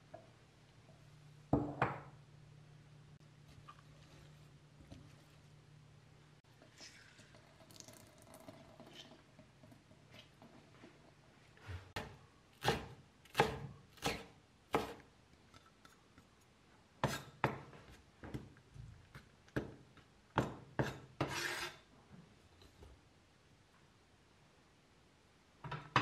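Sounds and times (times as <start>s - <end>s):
blade scraping across board: 21.2s - 21.8s.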